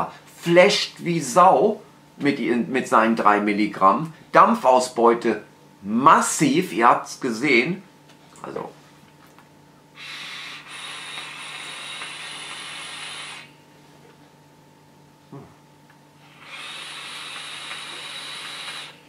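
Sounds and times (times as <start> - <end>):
e-cigarette draw hissing: 10.0 - 13.5, 16.4 - 19.0.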